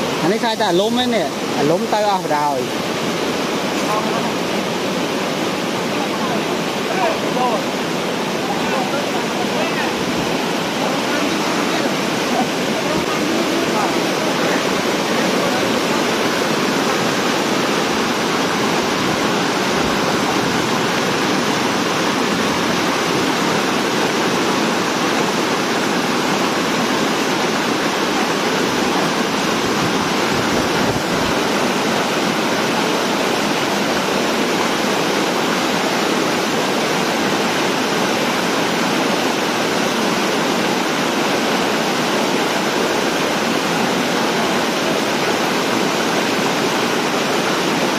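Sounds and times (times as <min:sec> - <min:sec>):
floodwater rushing over dam: 0:00.0 - 0:47.9.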